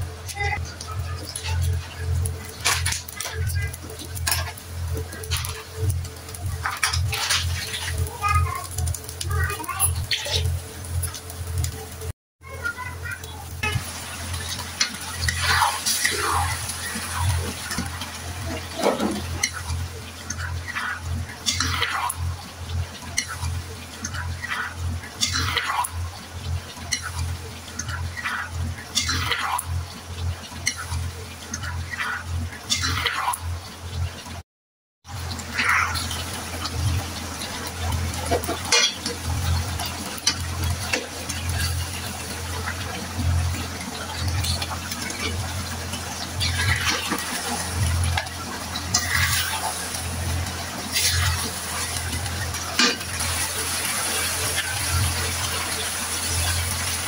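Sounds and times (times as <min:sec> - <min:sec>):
chicken sizzling in a frying pan: 0:00.0 - 0:34.4, 0:35.0 - 0:57.0
metal spatula scraping a pan: 0:06.6 - 0:08.0, 0:48.9 - 0:49.8.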